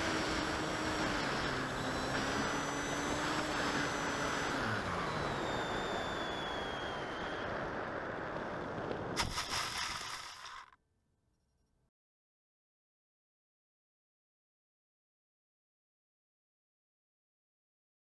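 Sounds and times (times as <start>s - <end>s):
model plane motor whine: 0.0s - 10.7s.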